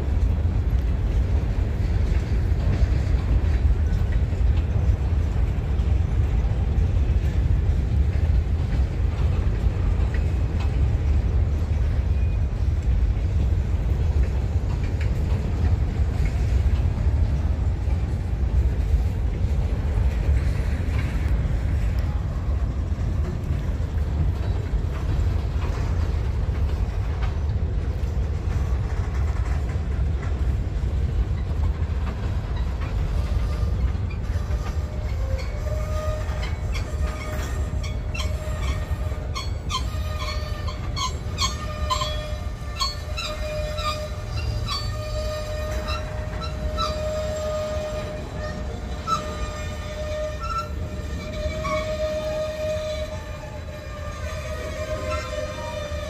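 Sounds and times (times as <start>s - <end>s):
faint clicking of train cars: 0.0s - 56.0s
freight train wheels rumbling: 0.0s - 56.0s
faint wheel squeal: 32.5s - 56.0s.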